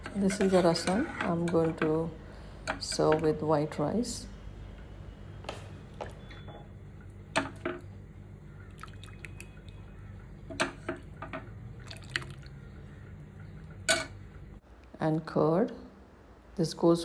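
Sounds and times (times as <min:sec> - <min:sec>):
liquid splashing and dripping: 0:08.7 - 0:09.9, 0:11.8 - 0:12.6.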